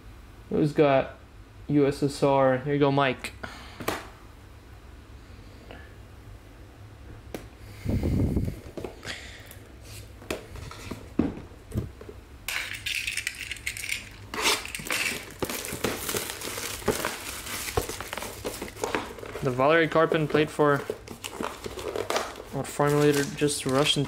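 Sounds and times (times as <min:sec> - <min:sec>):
packaging crinkling and rustling: 0:12.6 - 0:24.0.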